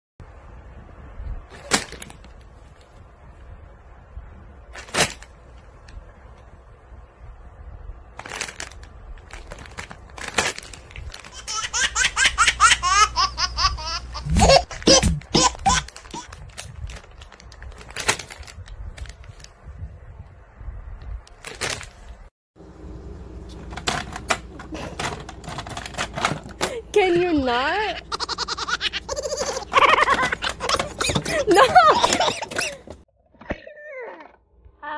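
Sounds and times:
plastic bags crinkling: 8.2s - 11.4s, 14.7s - 19.5s
plastic items clicking and clattering: 8.2s - 11.4s, 14.6s - 19.5s, 21.3s - 22.2s, 23.5s - 27.0s, 29.4s - 33.0s.

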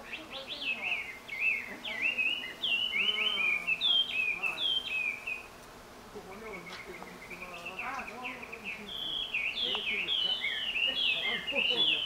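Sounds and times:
songbird singing whistled notes: 0.0s - 5.5s, 6.3s - 12.0s.

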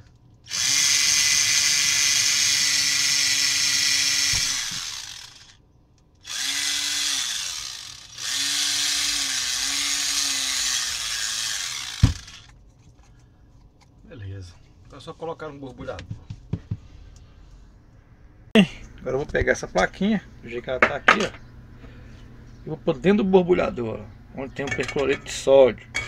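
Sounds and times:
cordless drill whining: 0.5s - 5.6s, 6.2s - 12.5s.

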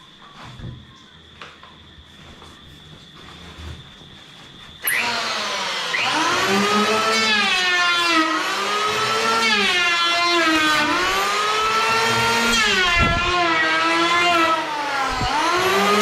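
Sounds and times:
electric wood planer whining: 4.8s - 16.0s.

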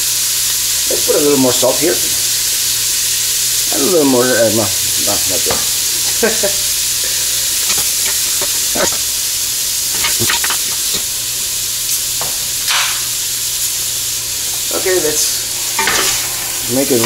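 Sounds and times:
meat sizzling in a pot: 0.0s - 17.0s
spoon scraping a pot: 9.9s - 11.1s
short loud hiss: 12.6s - 13.2s.

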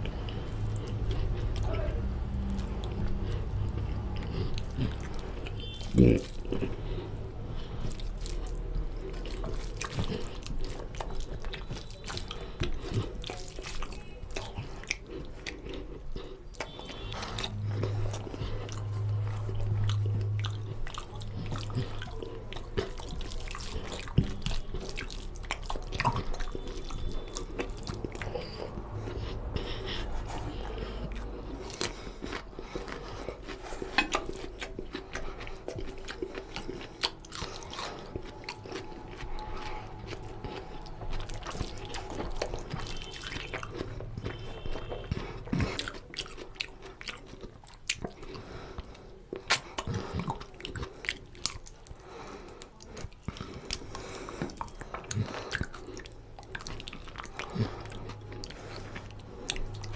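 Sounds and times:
wet chewing and lip-smacking: 0.0s - 59.9s
low hum: 16.7s - 22.0s.

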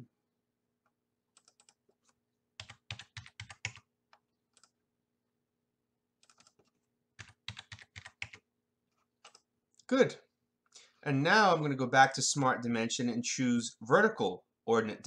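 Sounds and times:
keyboard typing: 1.3s - 4.8s, 6.2s - 8.5s, 9.2s - 9.5s.

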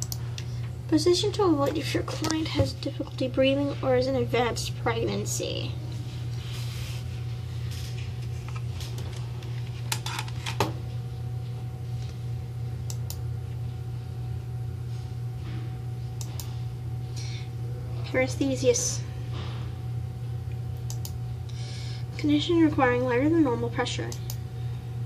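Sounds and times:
steady low hum: 0.0s - 25.0s
computer mouse clicking: 20.9s - 21.2s.

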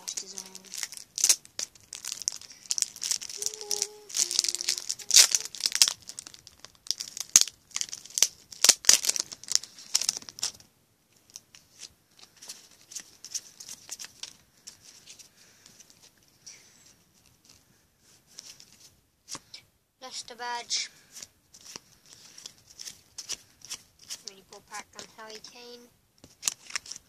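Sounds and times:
shiny wrapper being torn open: 0.0s - 10.6s, 21.6s - 24.4s, 26.3s - 27.0s
wrapper rustling: 0.0s - 16.2s, 21.0s - 25.4s, 26.2s - 27.0s.

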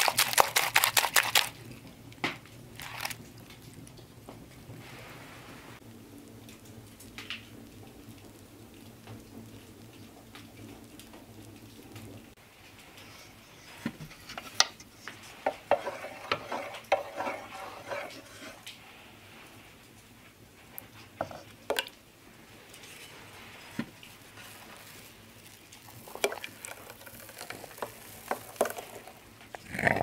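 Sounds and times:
spoon stirring thick syrup: 14.3s - 18.6s, 23.7s - 29.3s.

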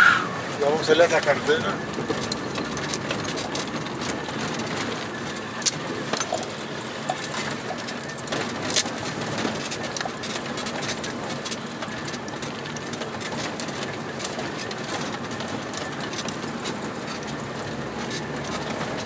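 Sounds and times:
engine and tyre rumble: 0.0s - 19.0s
knocks and rattles from bumps: 0.8s - 19.0s.

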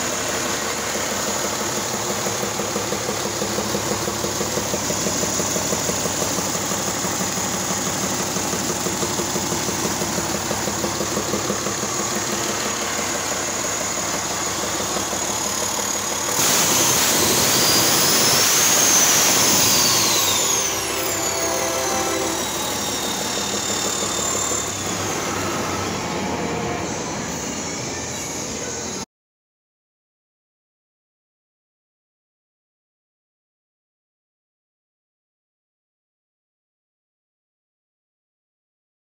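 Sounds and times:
diesel engine idling and revving: 0.0s - 29.0s
turbocharger whistle: 0.4s - 29.0s.

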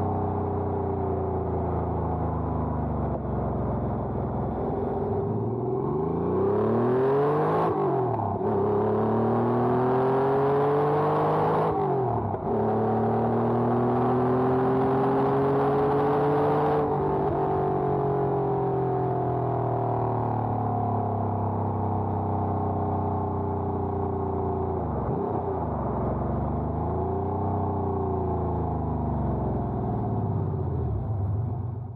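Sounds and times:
car engine revving with upshifts: 5.4s - 18.7s.

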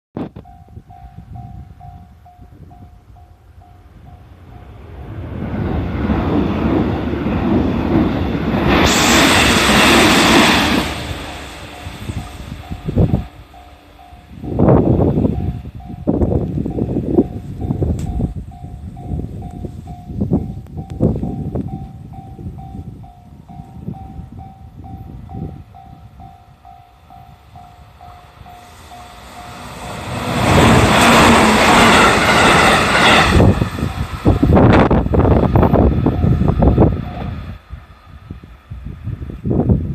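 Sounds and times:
train wheels rumbling on rails: 0.2s - 39.9s
level crossing warning bell: 0.3s - 4.8s, 11.6s - 33.2s
loud rushing hiss: 8.3s - 13.1s, 28.5s - 36.8s.

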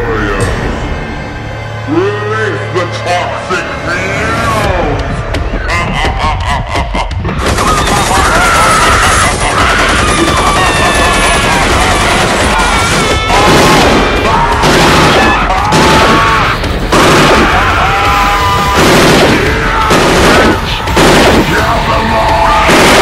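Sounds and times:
music: 0.0s - 23.0s
voices: 1.9s - 23.0s
rapid bangs and crashes: 7.2s - 23.0s.

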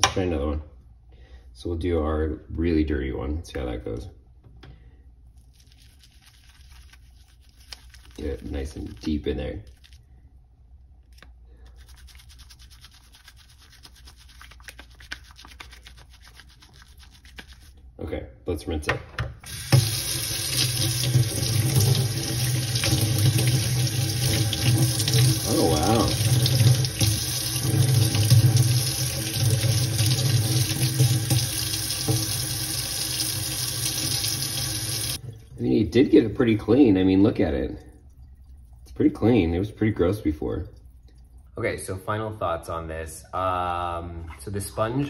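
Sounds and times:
brush scrubbing on silicone mat: 5.4s - 10.0s, 11.1s - 17.8s
tap water running into sink: 19.4s - 35.3s.

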